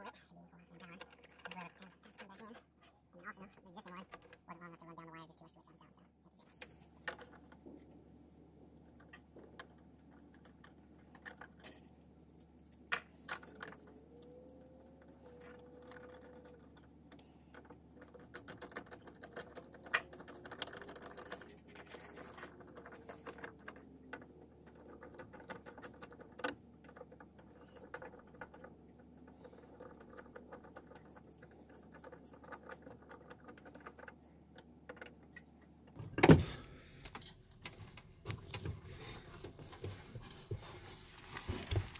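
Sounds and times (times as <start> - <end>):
hands handling electrical box: 34.9 - 41.9.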